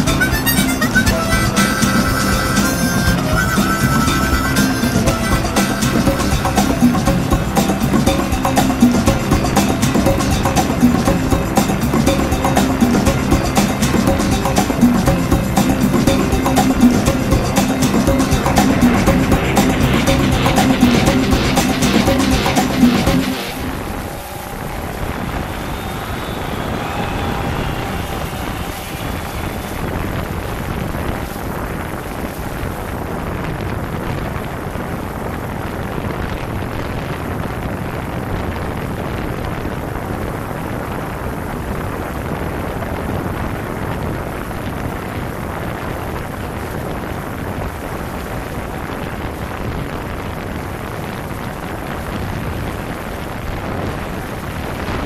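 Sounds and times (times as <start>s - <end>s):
propeller downwash rushing: 0.0s - 33.1s.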